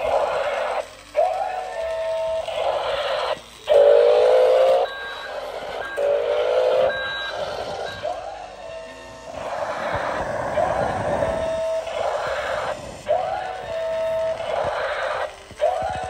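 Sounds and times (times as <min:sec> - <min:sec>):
electronic warning tones: 0:00.0 - 0:16.0
simulated engine noise: 0:00.0 - 0:16.0.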